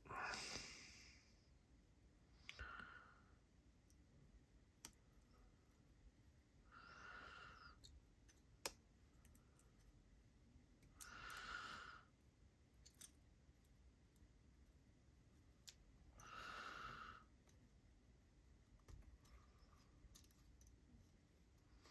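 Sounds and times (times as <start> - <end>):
soft breaths: 0.0 - 3.7, 4.9 - 8.1, 10.8 - 12.3, 16.0 - 17.8, 18.9 - 21.9.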